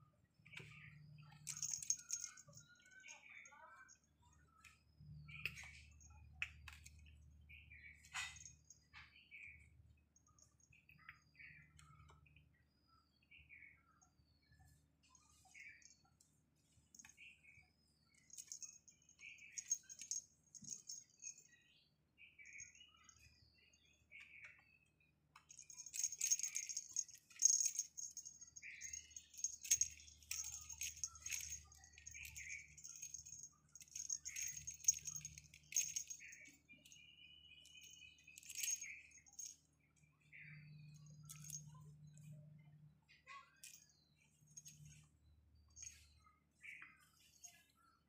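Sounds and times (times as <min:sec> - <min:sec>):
faint high chirps: 0:00.1 - 0:48.0
small bell jingling: 0:00.6 - 0:04.0, 0:18.2 - 0:21.6, 0:25.4 - 0:39.7, 0:41.0 - 0:41.8, 0:43.6 - 0:43.9, 0:44.5 - 0:45.0.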